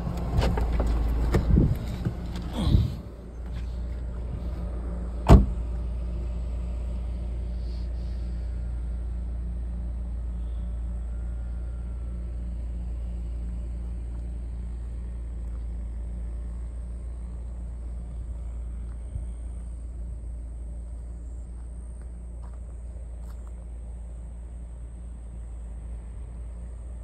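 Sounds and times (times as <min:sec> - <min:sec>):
car engine and tyres rumble: 0:00.0 - 0:27.0
loud thump: 0:05.2 - 0:05.6.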